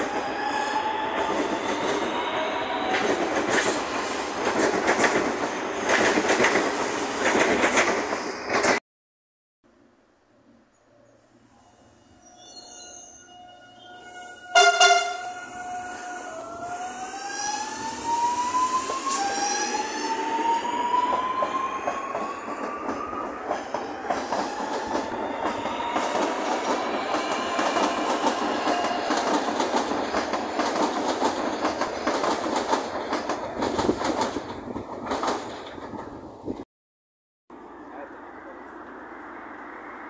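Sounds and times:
wheels clacking over rail joints: 21.1 - 36.3.

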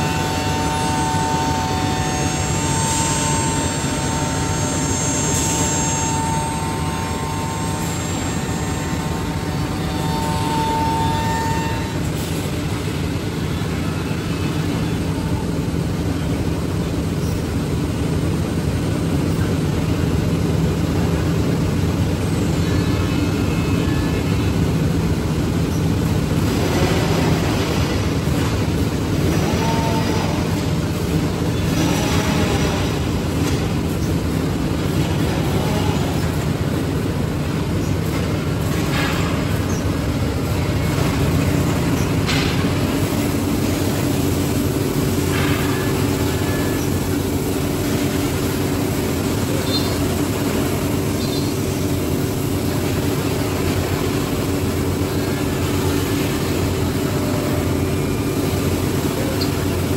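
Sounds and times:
router cutting wood: 0.0 - 11.9
cnc machine drone: 0.0 - 59.9
steady machine hum: 0.0 - 59.9.

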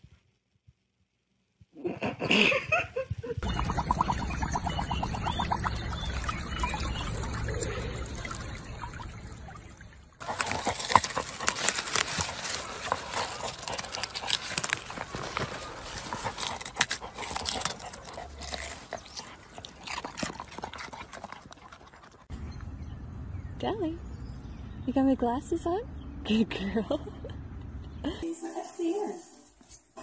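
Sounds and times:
water trickling and sloshing: 3.4 - 22.3
animal vocal noise: 10.2 - 22.3
dog digging in soil: 10.2 - 22.3.

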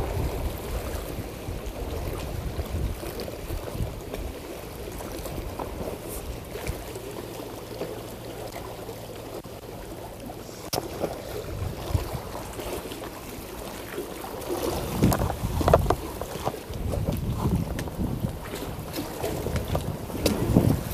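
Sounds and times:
wind on microphone: 0.0 - 6.8, 10.6 - 12.8, 14.5 - 20.9
sea water: 0.0 - 20.9.

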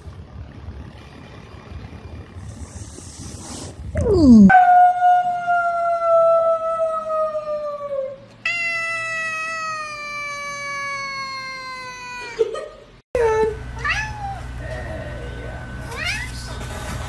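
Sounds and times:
cat meowing: 8.5 - 12.3, 13.8 - 14.4
cat chirping: 13.8 - 14.5.

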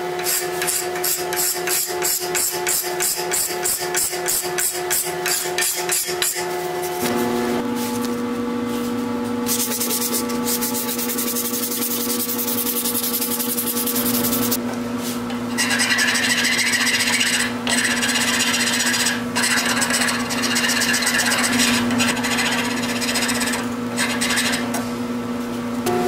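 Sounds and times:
metal file rasping on wood: 0.2 - 6.5, 15.6 - 24.7.

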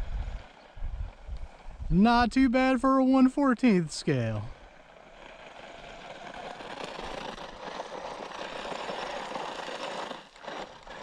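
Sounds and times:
toy truck tyres crunching gravel: 0.0 - 2.6, 3.6 - 11.0
electric motor running: 4.3 - 11.0.

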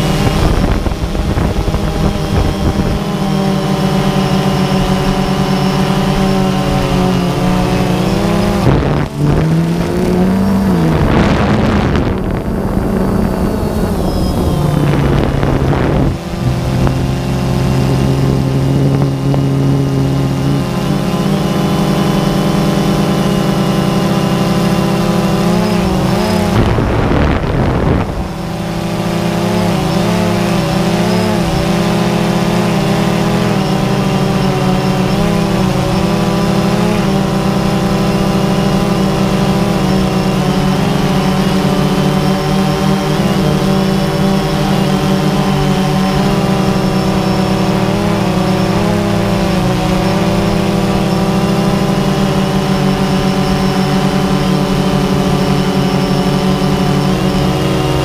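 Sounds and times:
drone propellers whining: 0.0 - 58.0.

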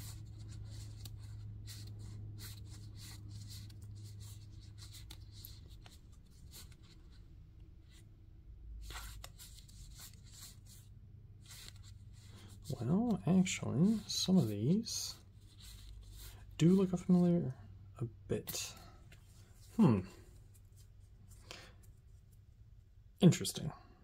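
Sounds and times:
cards sliding and flicking: 0.0 - 7.2, 8.8 - 10.8, 11.4 - 13.2, 15.3 - 16.4.

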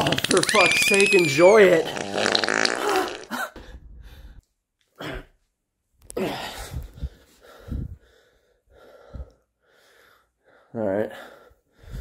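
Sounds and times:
man gasping and groaning: 6.1 - 8.1.

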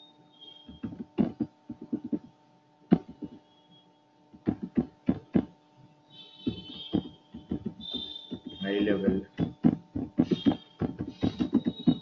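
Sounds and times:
faint electrical hum: 0.0 - 12.0
keyboard typing: 0.7 - 2.3, 2.9 - 3.4, 4.4 - 5.5, 6.4 - 12.0.

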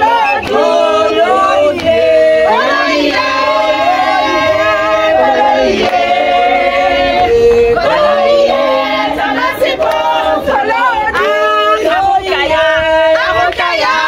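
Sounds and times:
group of people singing: 0.0 - 14.0.

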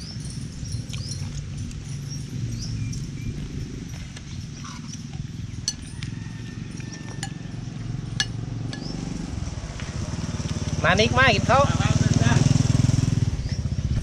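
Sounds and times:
bird-like chirps: 0.0 - 9.2
steady low rumble: 0.0 - 11.5
spoon clinking on plate: 5.6 - 6.2.

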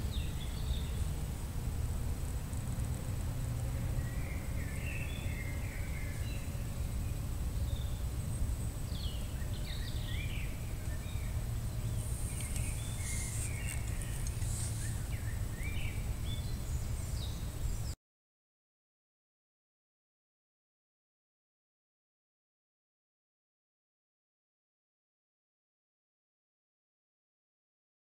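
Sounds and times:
high hiss: 0.0 - 17.9
birds chirping: 0.0 - 18.0.

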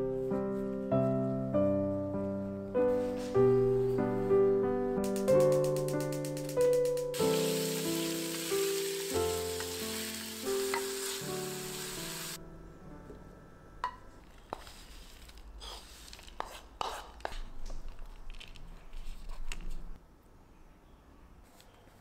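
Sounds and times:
chicken sizzling in a frying pan: 7.1 - 12.4
spatula stirring: 14.3 - 17.5.

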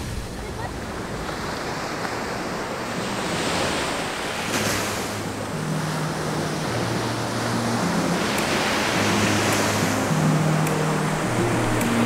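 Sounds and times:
surf washing onto beach: 0.0 - 12.0
soft background music: 2.4 - 12.0.

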